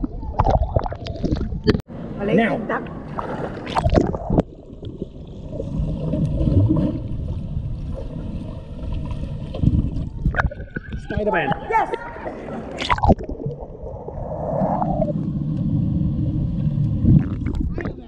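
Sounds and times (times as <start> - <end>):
water splashing: 2.8 - 18.0
muffled underwater rumble: 12.8 - 18.0.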